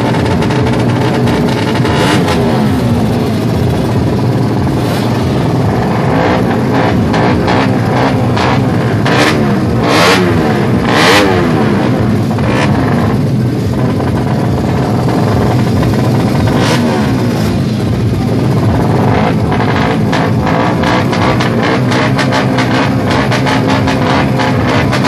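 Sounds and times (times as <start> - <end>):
motorcycle engines revving: 0.0 - 25.0.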